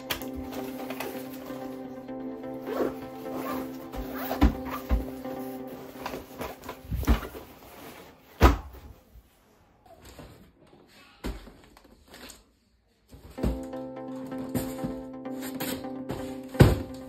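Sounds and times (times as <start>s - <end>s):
background music with steady tones: 0.0s - 8.1s, 13.3s - 17.0s.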